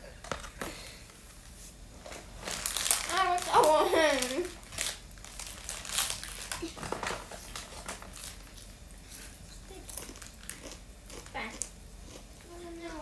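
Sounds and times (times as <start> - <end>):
plastic bag rustling: 2.0 - 10.6
crackers being crunched: 2.0 - 12.5.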